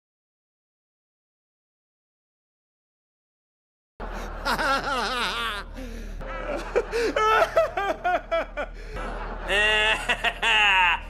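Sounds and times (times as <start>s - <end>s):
man laughing theatrically: 4.0s - 11.0s.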